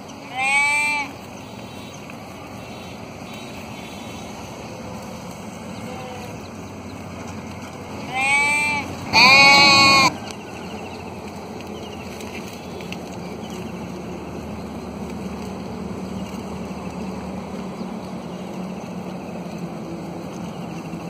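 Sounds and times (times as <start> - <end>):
sheep bleating: 0.3 - 1.1, 5.8 - 6.4, 8.0 - 10.2.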